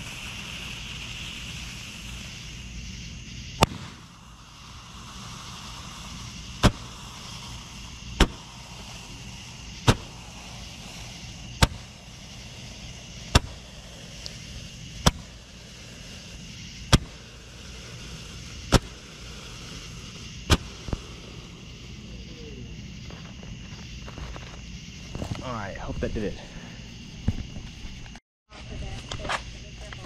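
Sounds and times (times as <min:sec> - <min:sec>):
firework bangs: 0:00.0 - 0:30.0
small firework pop: 0:03.6 - 0:04.2, 0:05.4 - 0:09.2, 0:09.8 - 0:10.2, 0:11.1 - 0:12.0, 0:13.3 - 0:13.6, 0:14.2 - 0:14.4, 0:15.0 - 0:15.4, 0:16.9 - 0:17.3, 0:18.6 - 0:19.0, 0:20.1 - 0:21.5, 0:27.2 - 0:28.2.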